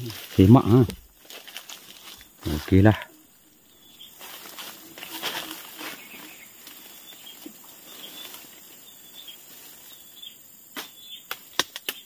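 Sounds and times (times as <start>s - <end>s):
faint chirps: 2.0s - 12.0s.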